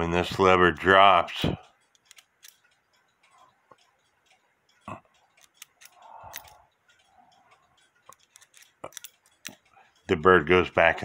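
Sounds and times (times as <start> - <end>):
clock lever clicks: 0.8 - 3.1, 3.7 - 7.1, 7.8 - 9.7.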